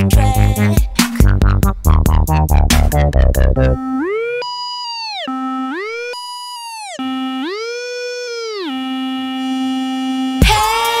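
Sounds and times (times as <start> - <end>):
sliding synthesizer tone: 2.6 - 10.4.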